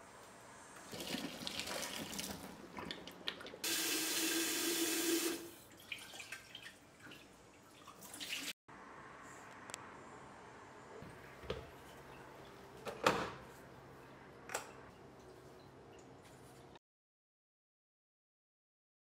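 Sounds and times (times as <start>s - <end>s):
faucet running into kettle: 0.9s - 3.0s, 3.6s - 6.6s
water splashing into sink drain: 0.9s - 8.5s.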